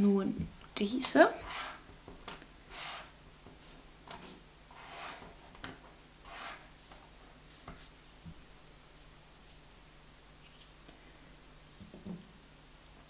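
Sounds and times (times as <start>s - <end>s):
pieces sliding over wood: 4.1s - 5.4s.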